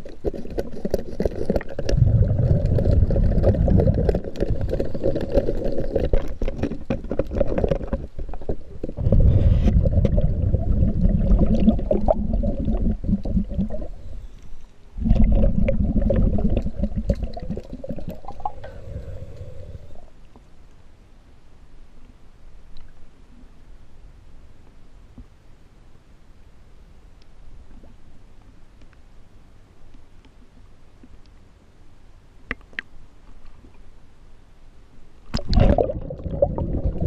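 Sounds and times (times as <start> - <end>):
clicks and scrapes against hull: 0.0 - 10.2
underwater bubbling of exhaled air: 0.0 - 14.3, 15.0 - 20.1, 35.3 - 37.0.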